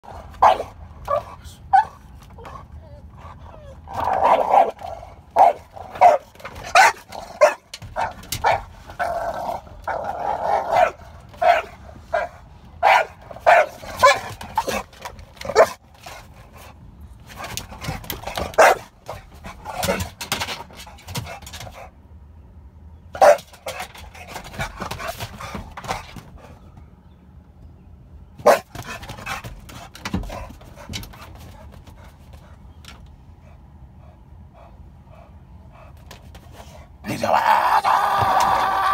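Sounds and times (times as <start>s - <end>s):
large dog barking: 0.0s - 2.0s, 3.9s - 15.8s, 18.2s - 20.1s, 23.2s - 23.9s, 28.4s - 29.4s.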